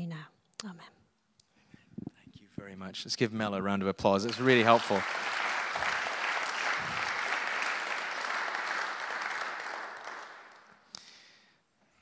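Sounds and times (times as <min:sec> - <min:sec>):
congregation applauding: 0:04.2 - 0:11.0.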